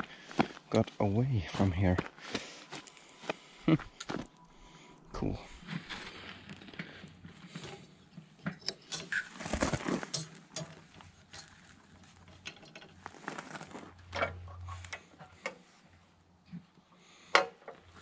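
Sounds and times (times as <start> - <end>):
tools and metal parts knocking: 8.4 - 9.4, 10.0 - 11.5, 12.2 - 13.0.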